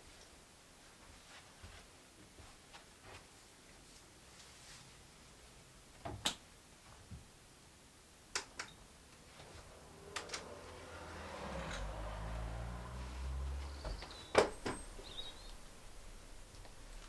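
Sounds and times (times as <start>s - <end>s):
outdoor background noise: 0.0s - 17.0s
door opening: 13.8s - 15.6s.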